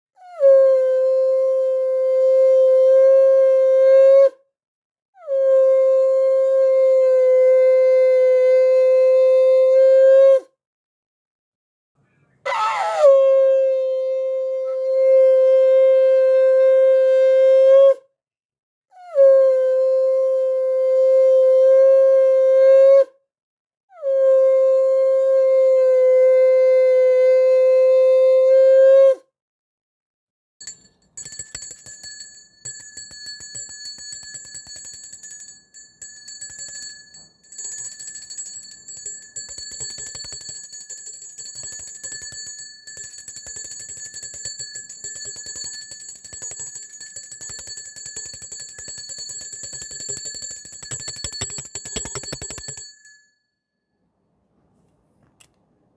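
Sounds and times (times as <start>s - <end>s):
conch shell blowing: 0.3s - 4.4s, 5.3s - 10.4s, 12.8s - 18.0s, 19.1s - 23.1s, 24.0s - 29.1s
hand bell ringing rapidly: 30.6s - 53.4s.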